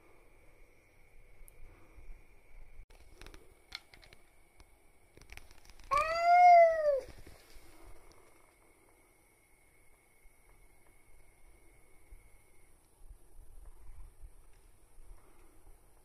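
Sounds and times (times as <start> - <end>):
cat meowing: 5.9 - 7.1
faint clicks and scuffs: 7.0 - 8.6.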